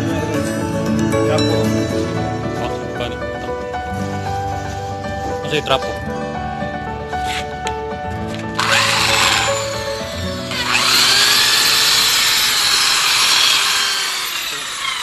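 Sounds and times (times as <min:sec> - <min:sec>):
electric polisher motor whine: 0:08.6 - 0:15.0.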